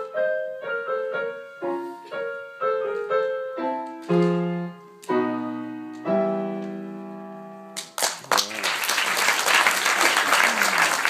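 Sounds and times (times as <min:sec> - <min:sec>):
audience applause: 0:07.9 - 0:11.0.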